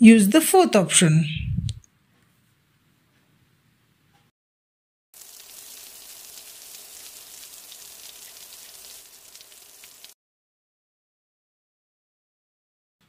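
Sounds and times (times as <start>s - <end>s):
steady rain: 5.2s - 10.2s.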